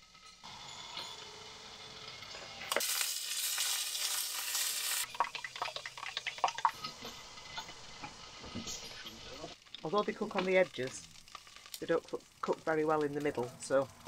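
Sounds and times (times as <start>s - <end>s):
sausages sizzling in a frying pan: 0.0s - 14.0s.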